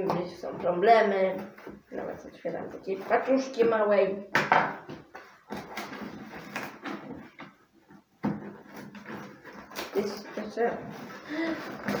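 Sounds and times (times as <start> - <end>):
cardboard flaps scraping: 5.4 - 7.5, 8.3 - 12.0
packing tape ripping: 5.5 - 7.0.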